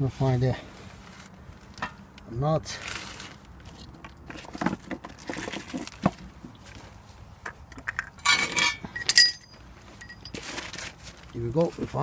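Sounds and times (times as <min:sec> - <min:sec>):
small metal parts clinking: 0:07.8 - 0:10.6.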